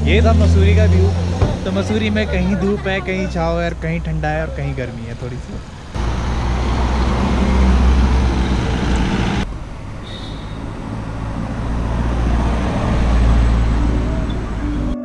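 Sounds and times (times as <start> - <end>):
car driving past on wet road: 6.0 - 14.9.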